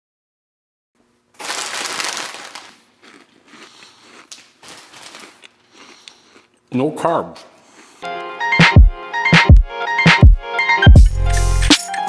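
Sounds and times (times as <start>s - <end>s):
plastic snack bag crinkling: 1.3s - 6.6s.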